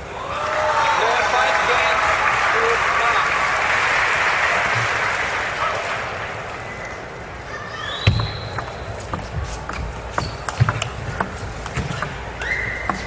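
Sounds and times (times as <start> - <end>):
shoe squeak on floor: 7.9 - 10.8
table tennis ball clicking: 8.2 - 12.2.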